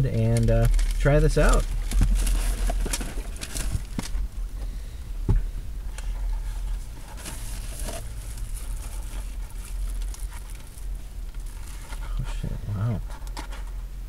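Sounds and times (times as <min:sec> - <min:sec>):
low steady rumble: 0:00.0 - 0:14.0
cardboard box rustling: 0:00.3 - 0:04.2, 0:05.9 - 0:12.4.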